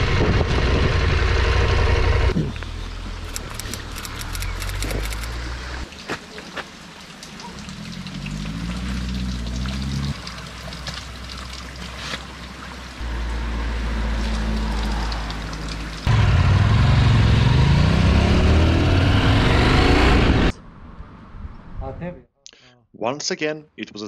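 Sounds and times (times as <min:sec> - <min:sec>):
low hum: 0:00.0 - 0:05.8
water pouring from spout: 0:13.8 - 0:16.1.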